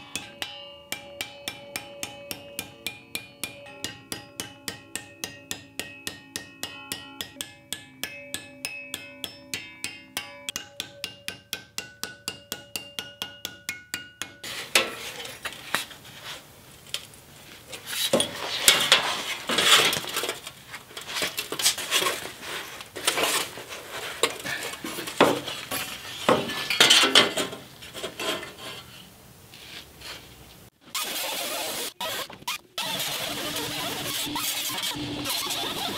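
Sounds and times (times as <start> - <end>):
hammer striking sheet metal: 0.0 - 15.1
sheet metal clanking and scraping: 14.4 - 15.6, 17.7 - 28.9.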